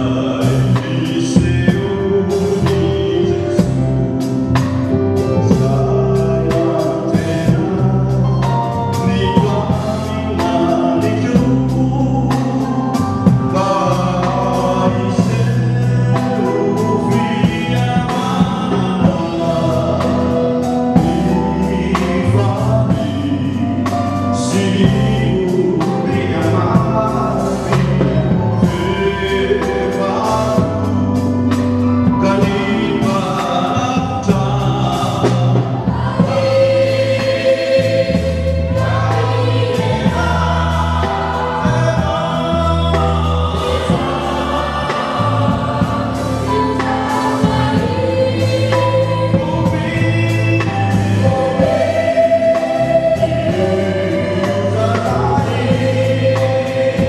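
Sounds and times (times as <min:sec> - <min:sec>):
held low accompanying notes: 0:00.0 - 0:57.0
mixed choir singing a carol: 0:00.0 - 0:57.0
steady beat: 0:26.8 - 0:57.0.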